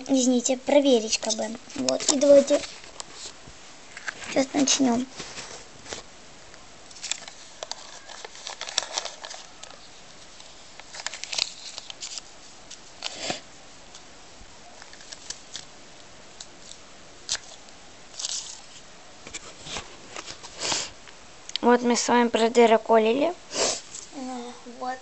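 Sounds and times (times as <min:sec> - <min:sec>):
paper rustling: 0:00.9 - 0:06.1, 0:06.9 - 0:14.0, 0:14.8 - 0:15.7, 0:16.4 - 0:20.9.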